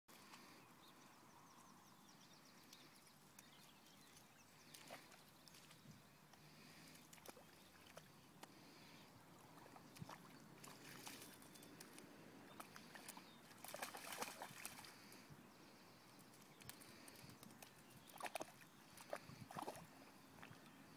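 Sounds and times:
dog splashing in puddle: 0:07.1 - 0:08.1, 0:09.5 - 0:12.0, 0:12.6 - 0:15.0, 0:16.6 - 0:19.9.

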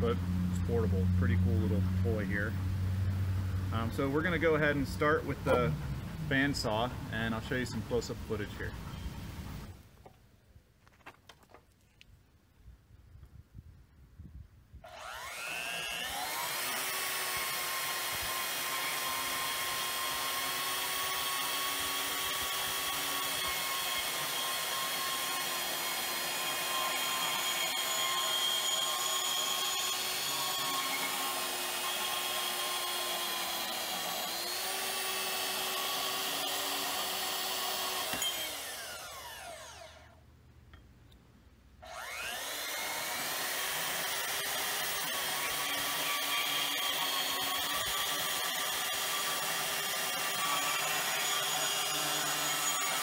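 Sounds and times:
bandsaw cutting steel: 0:03.7 - 0:09.8, 0:14.8 - 0:40.2, 0:41.8 - 0:53.0.

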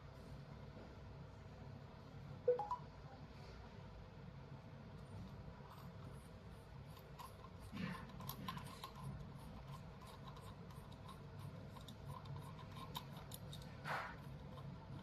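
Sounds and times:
metal tube clicking and rubbing: 0:06.8 - 0:15.0.

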